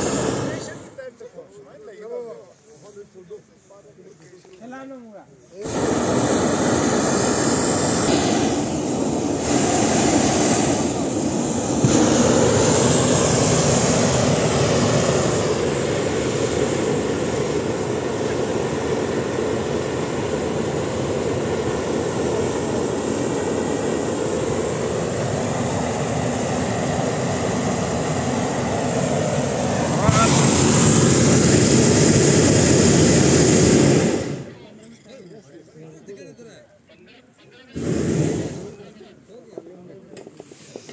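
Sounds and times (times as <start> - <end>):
propane burner rushing hiss: 0.0 - 1.1, 5.4 - 34.6, 37.8 - 38.9, 40.2 - 40.9.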